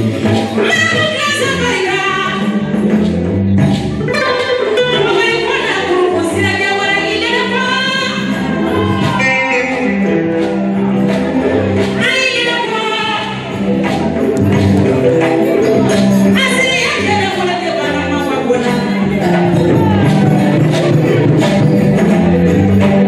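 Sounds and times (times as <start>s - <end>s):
amplified backing music: 0.0s - 23.0s
woman singing into a microphone: 0.6s - 2.5s, 4.0s - 8.3s.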